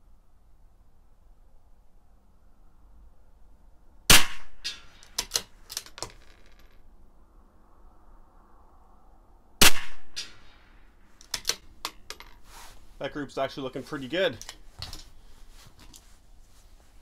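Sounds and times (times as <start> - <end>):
rifle shots: 4.1 - 5.4, 9.6 - 10.5
rifle bolt metallic clicks: 4.6 - 6.1, 11.2 - 12.0.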